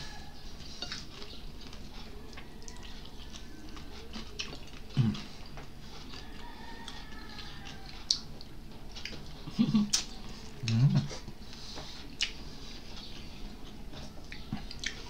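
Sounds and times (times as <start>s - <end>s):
chewing clicks and smacks: 0.9s - 10.8s, 12.1s - 12.4s, 14.2s - 15.0s.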